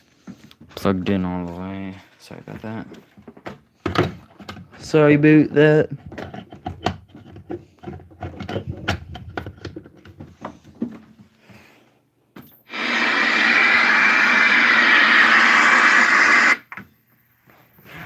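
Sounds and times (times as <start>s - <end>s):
television static hiss: 12.7s - 16.8s.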